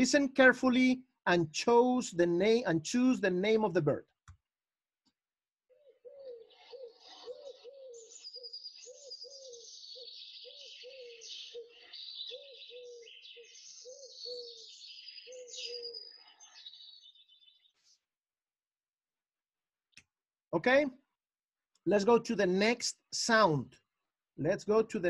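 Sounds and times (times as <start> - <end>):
dove cooing: 5.7 - 16.2
songbirds chirping and trilling: 5.7 - 18.2.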